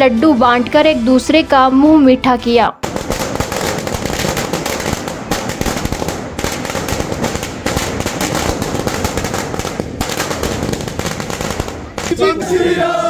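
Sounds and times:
firecrackers going off: 2.8 - 12.3.

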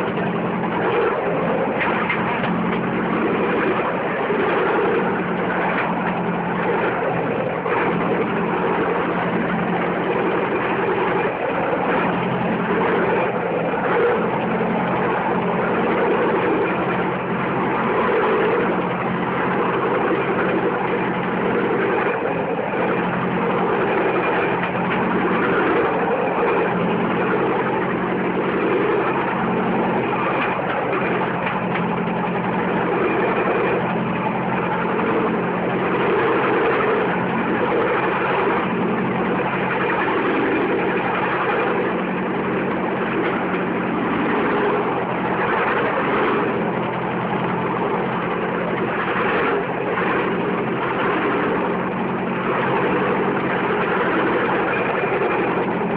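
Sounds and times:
small engine droning: 0.0 - 55.9
wheels rattling on track: 0.0 - 55.9.

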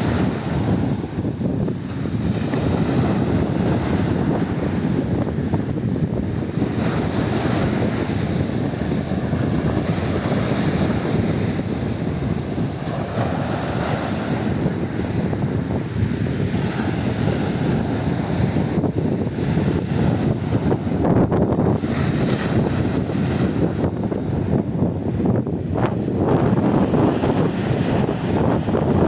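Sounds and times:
wind rumbling on microphone: 0.0 - 29.0
surf breaking on pebble beach: 6.4 - 23.9.

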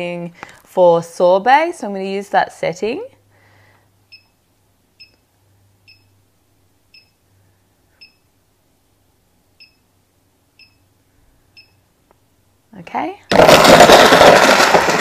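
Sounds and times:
faint electronic beeps: 6.9 - 7.2, 7.9 - 8.3, 9.6 - 9.9, 10.6 - 11.9.

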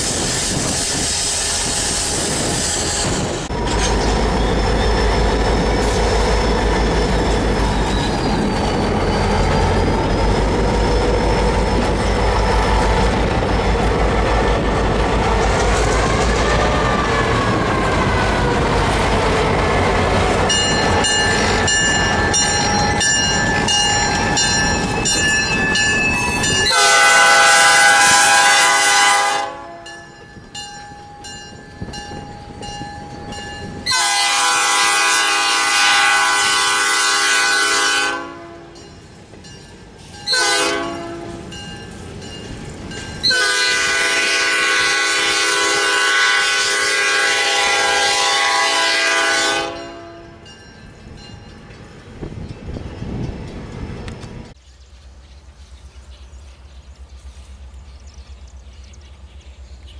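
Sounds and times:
freight train passing: 0.0 - 59.9
freight cars clattering on rails: 2.2 - 16.6
train air horn: 26.6 - 30.0, 33.9 - 38.8, 40.3 - 41.5, 43.3 - 50.4.

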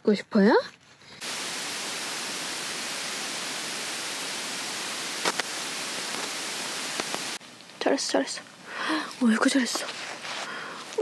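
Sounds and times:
heavy rain on a tent: 1.2 - 7.7.

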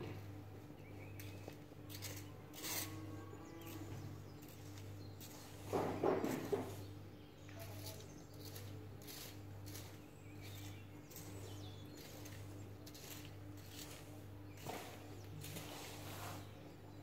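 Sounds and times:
low machine hum: 0.0 - 17.0
rake scratching through leaves: 1.2 - 6.9, 7.6 - 16.6.

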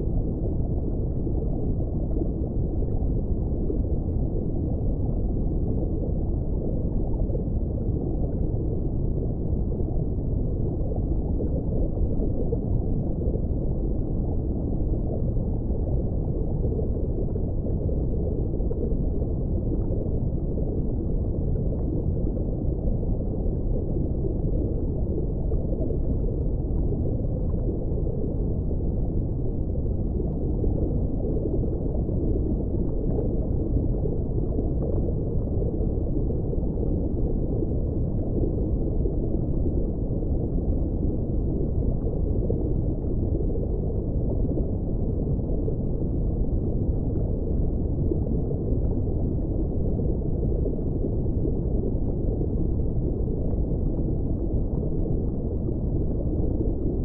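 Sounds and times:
muffled underwater rumbling: 0.0 - 57.0.

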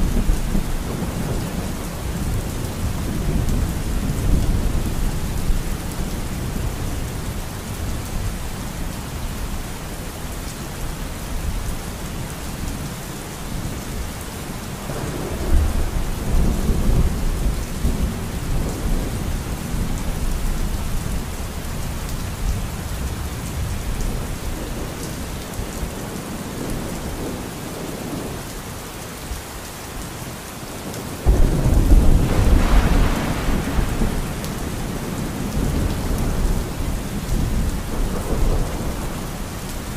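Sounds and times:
thunder rumbling: 0.0 - 8.3, 14.8 - 21.2, 31.2 - 39.9
steady rain: 0.0 - 39.9.

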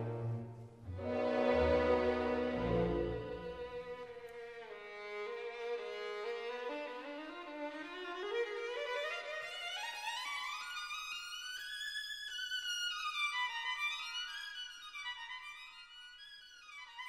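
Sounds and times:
sliding instrument melody: 0.0 - 4.0.

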